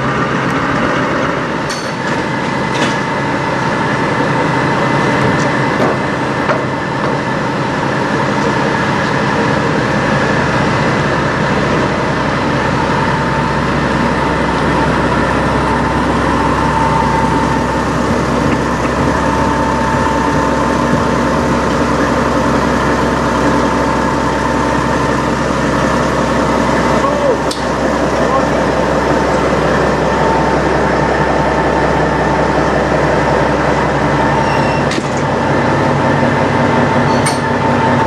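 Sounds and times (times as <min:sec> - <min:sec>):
diesel truck engine idling: 0:00.0 - 0:38.0
thin high whine: 0:29.3 - 0:35.6.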